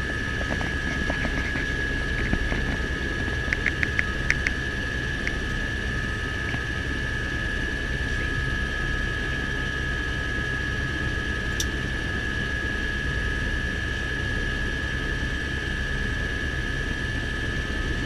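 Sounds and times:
helicopter turbine whine: 0.0 - 18.0
sharp clicks: 3.5 - 4.6.

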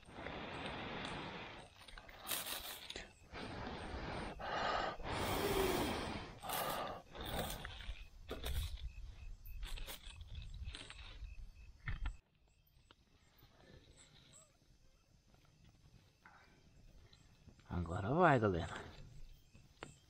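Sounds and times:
person blowing on embers: 0.0 - 9.0.

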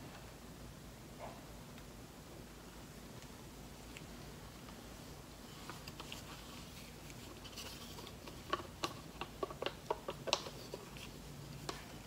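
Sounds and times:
plastic cups clicking: 7.1 - 12.0.

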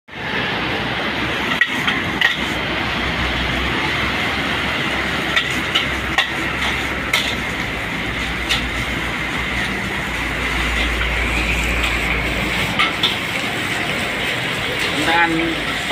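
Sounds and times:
gas burner rushing: 0.1 - 15.9
metal spatula clanking on wok: 1.6 - 2.5, 5.3 - 7.5, 12.7 - 13.4.

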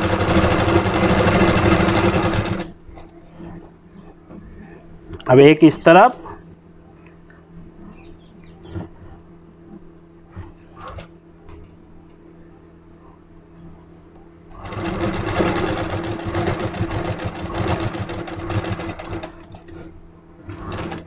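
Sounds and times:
sewing machine stitching: 0.0 - 2.8, 14.6 - 21.0
low steady hum: 0.0 - 21.0.

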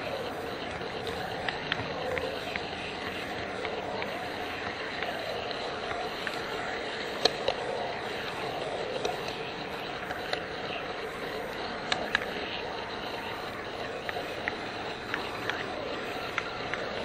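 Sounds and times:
model train wheels and motor: 0.0 - 17.0
sharp track clicks: 0.0 - 17.0.

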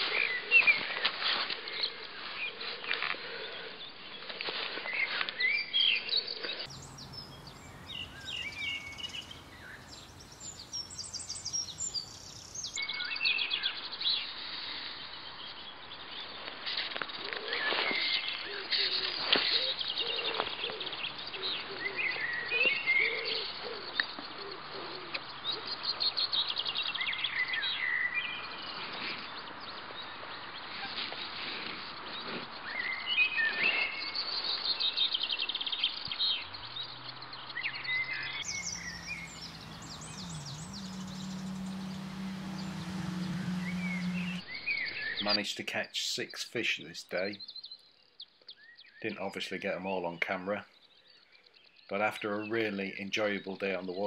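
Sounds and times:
small birds singing and chirping: 4.9 - 14.3, 32.0 - 54.0.

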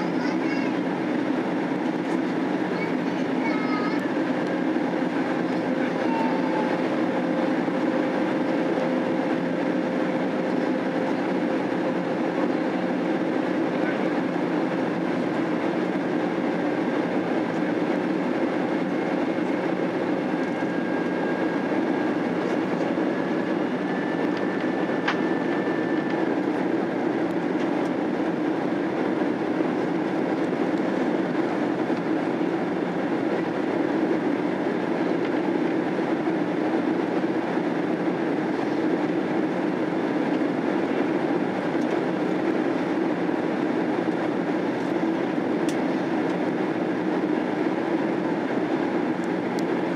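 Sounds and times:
airliner cabin noise: 0.0 - 49.9
faint whine: 2.7 - 33.5.

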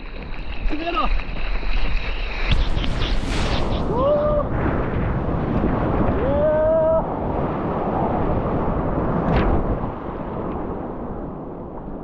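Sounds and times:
wind buffeting microphone: 0.0 - 12.0
heavy surf roaring: 2.6 - 11.7
person shouting: 3.9 - 4.5, 6.2 - 7.0.

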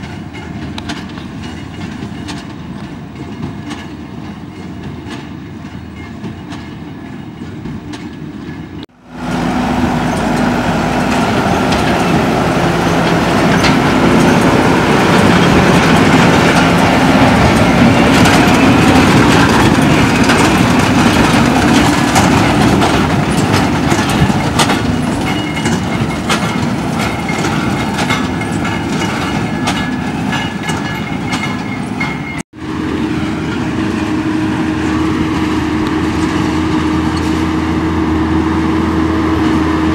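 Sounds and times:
tractor engine running: 0.0 - 39.9
baler mechanism clattering: 11.1 - 32.4.

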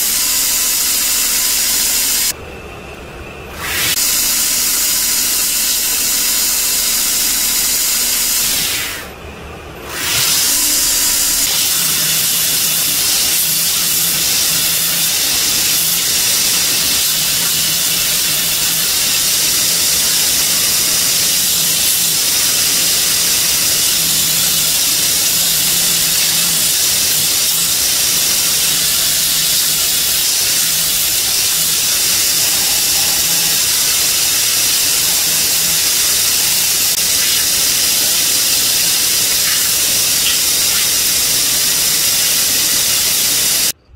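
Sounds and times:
belt grinder sanding wood: 9.9 - 43.7.

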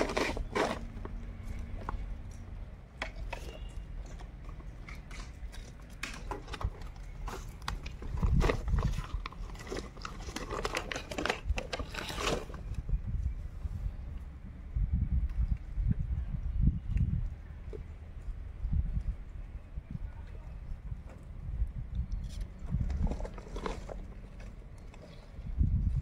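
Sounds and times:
plastic sack crinkling and rustling: 0.0 - 2.0, 5.1 - 12.8, 22.9 - 25.2.

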